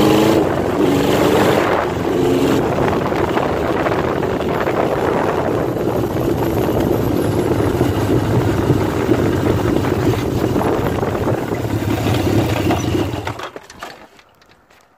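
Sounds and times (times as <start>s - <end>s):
motorcycle engine running: 0.0s - 13.4s.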